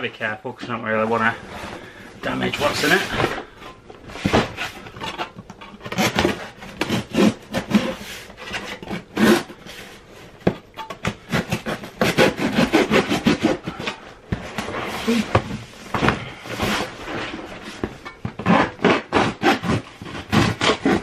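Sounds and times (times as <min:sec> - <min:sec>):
knife sawing through cardboard: 0:02.4 - 0:03.2, 0:05.9 - 0:10.0, 0:11.2 - 0:14.0, 0:18.4 - 0:21.0.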